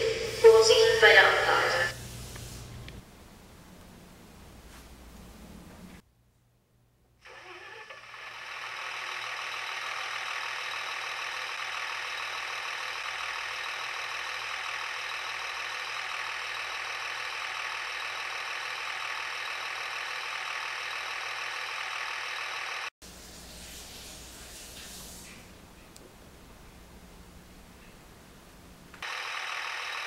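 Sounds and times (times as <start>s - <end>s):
diesel engine sound from loudspeaker: 7.3s - 22.9s.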